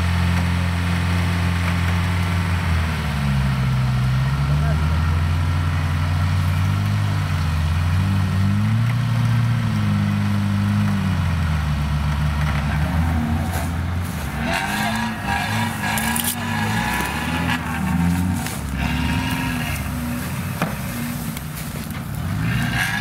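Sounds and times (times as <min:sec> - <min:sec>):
engine revving: 0:00.0 - 0:23.0
rustling: 0:12.4 - 0:23.0.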